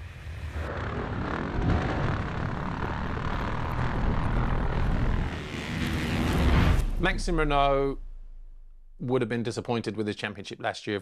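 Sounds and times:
motocross bike engine running: 0:00.8 - 0:06.8.

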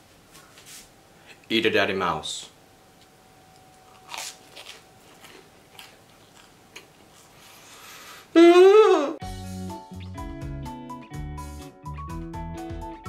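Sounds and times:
chewing bread: 0:03.8 - 0:07.5
music with steady beat: 0:09.2 - 0:13.0.

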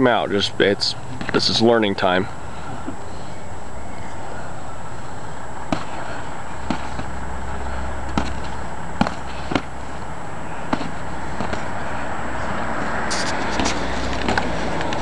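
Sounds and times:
low background rumble: 0:02.0 - 0:15.0
boxing gloves hitting: 0:05.6 - 0:09.9, 0:10.5 - 0:12.0, 0:13.5 - 0:14.6.

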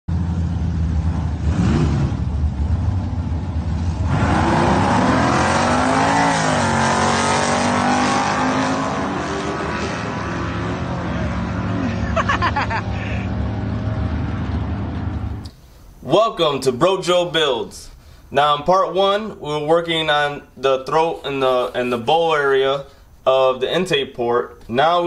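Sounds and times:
drag racing car engine revving: 0:00.1 - 0:15.5.

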